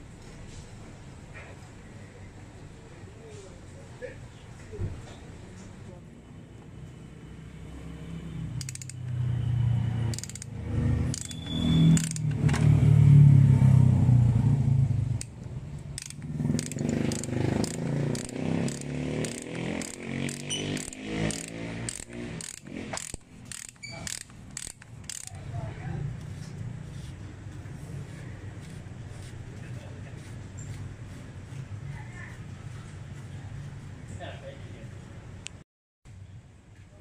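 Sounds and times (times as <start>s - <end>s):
ratchet wrench clicking: 8.6s - 9.2s, 10.1s - 12.4s, 15.2s - 25.4s
loud low grinding: 16.0s - 25.4s.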